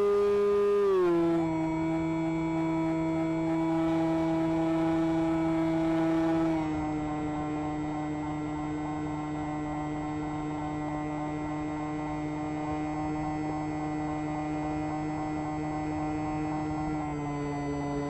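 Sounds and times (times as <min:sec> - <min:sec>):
electric motor and propeller hum: 0:00.0 - 0:18.0.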